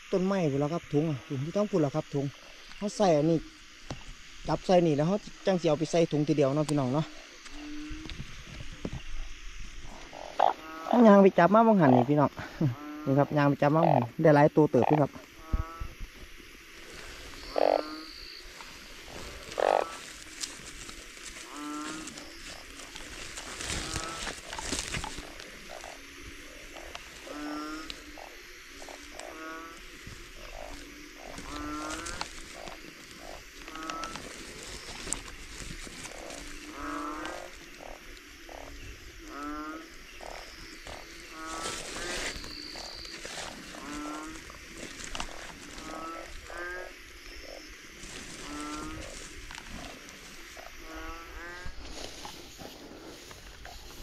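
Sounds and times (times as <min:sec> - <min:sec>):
frogs croaking: 0:00.0 - 0:54.0
net and sack rustling: 0:18.6 - 0:25.6, 0:30.0 - 0:37.6, 0:40.9 - 0:46.6.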